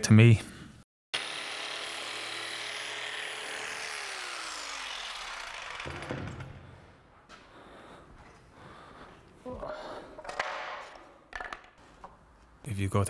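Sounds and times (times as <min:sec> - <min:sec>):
power tool motor whining: 0:01.2 - 0:06.5.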